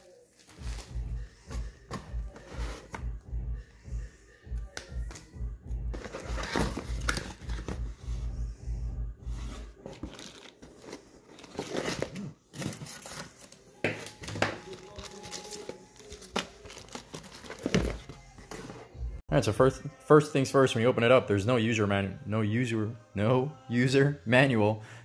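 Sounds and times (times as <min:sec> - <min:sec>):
cardboard packaging rustling: 0:06.0 - 0:07.9, 0:09.4 - 0:18.9.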